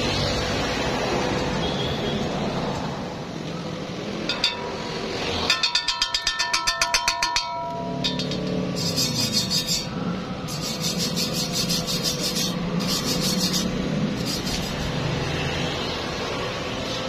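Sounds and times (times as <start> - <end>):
wire brush scrubbing metal: 5.5 - 15.1.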